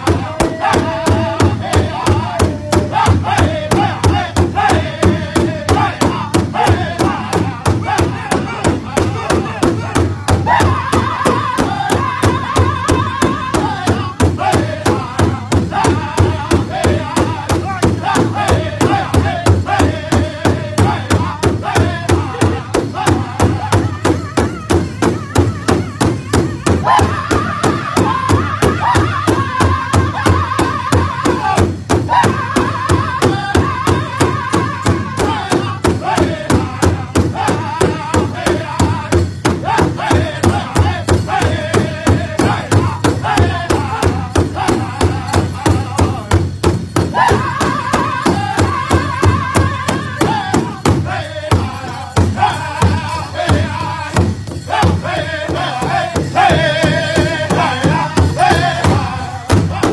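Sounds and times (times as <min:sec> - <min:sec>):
group singing in high voices: 0:00.0 - 0:59.9
large drum steady beat: 0:00.0 - 0:59.9.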